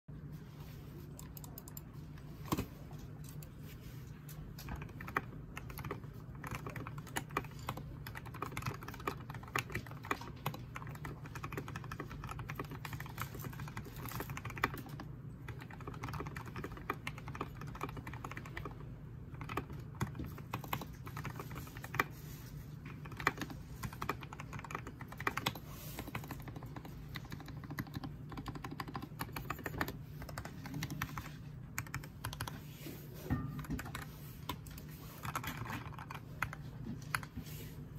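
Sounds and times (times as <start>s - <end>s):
mechanical keyboard typing: 4.6s - 22.2s, 22.9s - 32.6s, 33.6s - 37.3s.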